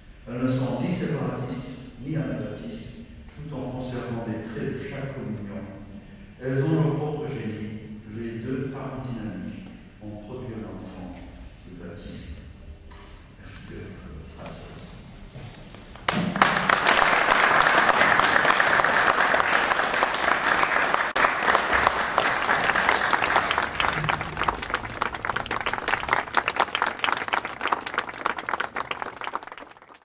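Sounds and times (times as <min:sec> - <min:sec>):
audience applauding: 0:16.0 - 0:30.0.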